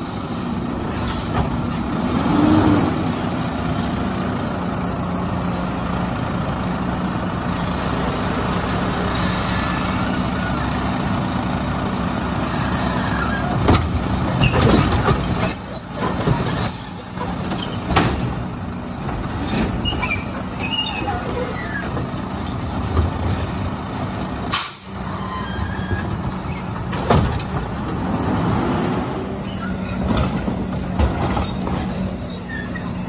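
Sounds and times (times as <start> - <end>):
diesel engine running: 0.0 - 33.0
high squeals: 9.1 - 10.9, 12.5 - 13.6, 31.9 - 33.0
clanks and bangs of loading equipment: 13.6 - 18.4, 29.9 - 31.9.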